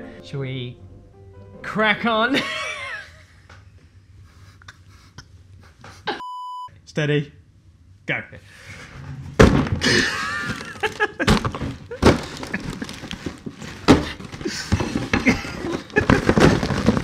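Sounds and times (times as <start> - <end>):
cardboard boxes bashed and torn: 9.4 - 17.0.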